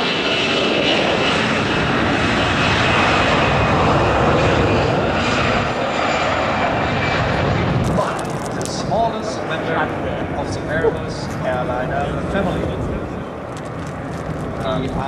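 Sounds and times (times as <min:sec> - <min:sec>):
airliner jet engines taking off: 0:00.0 - 0:15.0.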